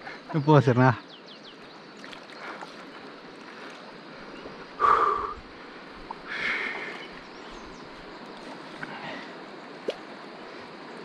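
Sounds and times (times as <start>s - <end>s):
river and wind hiss: 0.0s - 11.0s.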